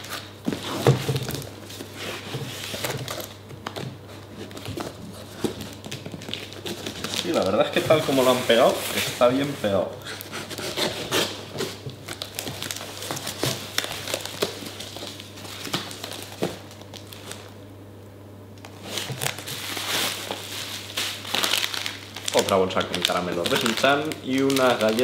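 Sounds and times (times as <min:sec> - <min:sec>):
packing tape tearing: 0:00.0 - 0:09.4, 0:10.1 - 0:17.5, 0:18.6 - 0:25.0
cardboard flaps rustling: 0:00.0 - 0:09.8
bubble wrap crinkling: 0:00.0 - 0:17.6, 0:18.6 - 0:25.0.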